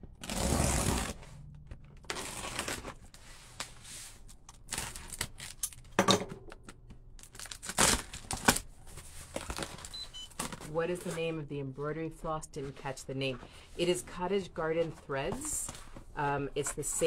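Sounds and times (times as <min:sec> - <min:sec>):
packing tape ripping: 0:00.2 - 0:01.2, 0:02.0 - 0:03.0, 0:04.6 - 0:05.9, 0:07.2 - 0:08.7
tape and cardboard crinkling: 0:00.2 - 0:06.0, 0:06.8 - 0:11.3.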